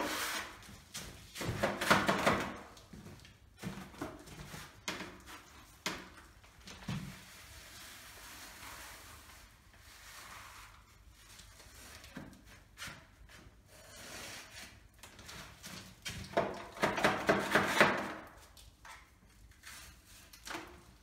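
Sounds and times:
hand tool scraping plaster wall: 0.0s - 2.8s, 7.0s - 21.0s.

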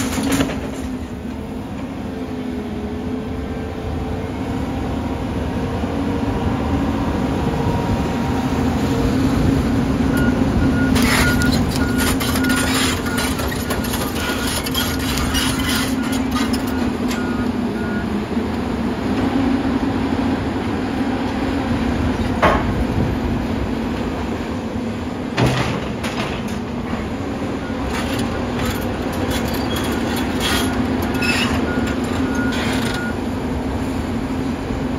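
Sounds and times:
clatter of concrete and metal: 0.0s - 1.1s, 10.8s - 17.3s, 25.4s - 27.1s, 27.8s - 33.2s
excavator diesel engine: 0.0s - 34.9s.

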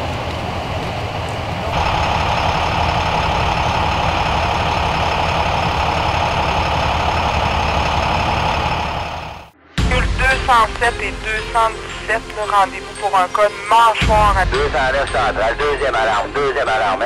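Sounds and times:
vehicle engines idling: 0.0s - 9.6s, 14.0s - 17.0s.

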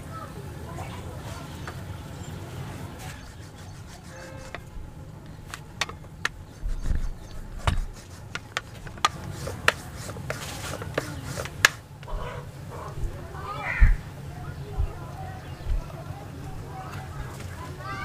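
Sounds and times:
rolling pin rolling dough: 3.0s - 12.4s
dull thumps: 4.2s - 16.0s
rolling pin clicking on board: 7.6s - 11.8s.

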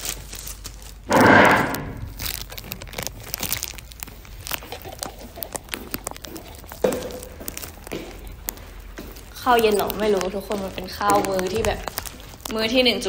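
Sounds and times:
clicks and crackles: 0.0s - 13.0s.

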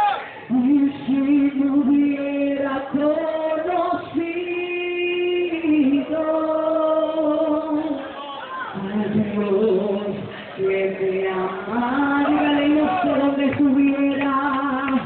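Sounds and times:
woman singing: 0.5s - 8.1s, 8.8s - 15.0s
congregation singing: 8.8s - 15.0s.

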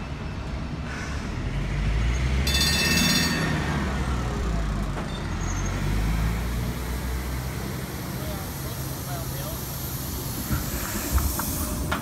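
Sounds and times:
tram rumbling on track: 0.0s - 12.0s
high ringing squeal: 2.4s - 3.7s.

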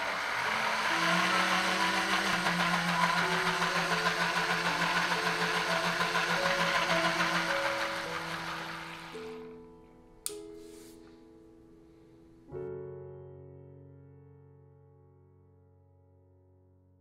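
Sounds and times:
small motor humming: 0.0s - 9.5s.

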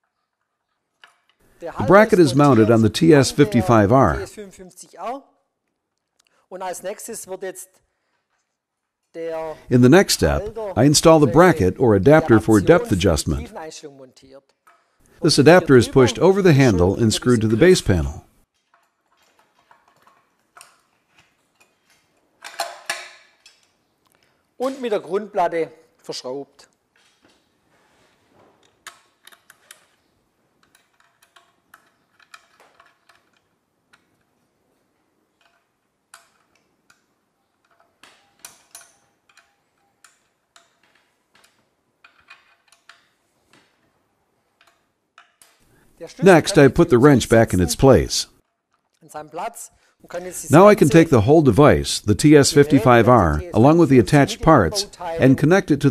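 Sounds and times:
small parts clicking: 0.0s - 1.5s, 18.5s - 24.9s, 28.6s - 34.5s, 35.1s - 45.9s
wrench clicking on metal screws: 30.6s - 34.3s, 35.4s - 43.2s.

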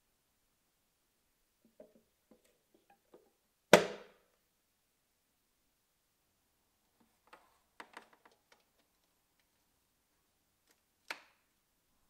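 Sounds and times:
plastic cord clicks and rattles: 7.2s - 9.5s.

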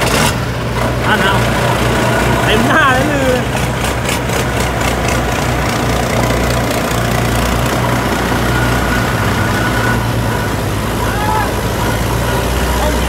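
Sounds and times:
heavy diesel engines droning: 0.0s - 13.0s.

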